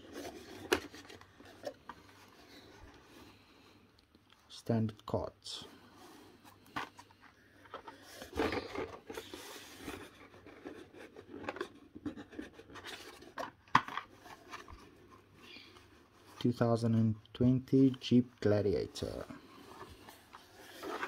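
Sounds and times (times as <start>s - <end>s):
paper and plastic scraping: 0.0s - 3.2s, 6.0s - 16.6s, 19.0s - 21.0s.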